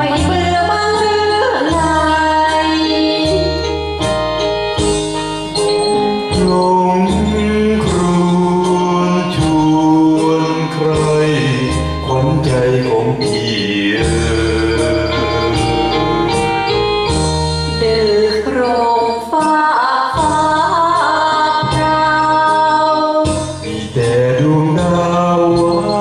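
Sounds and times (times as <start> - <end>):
person singing into microphone: 0.0 - 4.2, 6.2 - 26.0
keyboard backing track with bass: 0.0 - 26.0.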